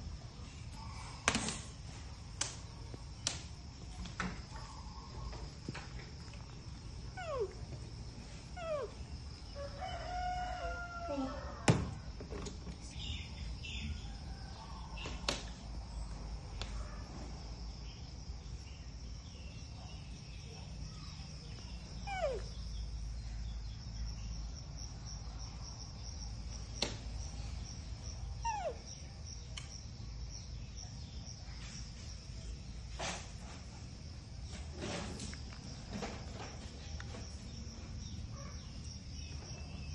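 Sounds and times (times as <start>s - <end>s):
rooster crowing: 9.5s - 12.1s.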